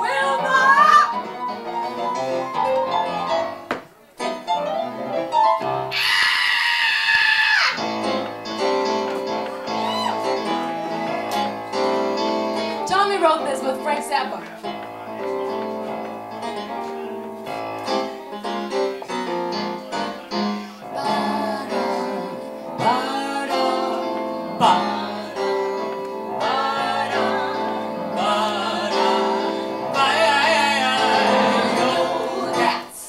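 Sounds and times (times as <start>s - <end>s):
electronic keyboard chords: 7.8s - 33.0s
person singing: 20.8s - 25.8s, 26.5s - 33.0s.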